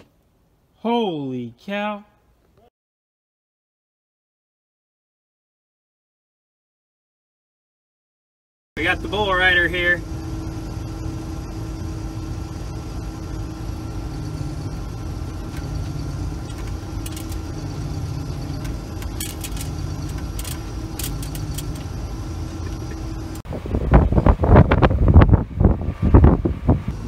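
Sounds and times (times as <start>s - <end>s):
combine harvester engine hum: 8.8s - 27.0s
constant whining tones: 8.8s - 27.0s
light rattles: 15.3s - 23.4s.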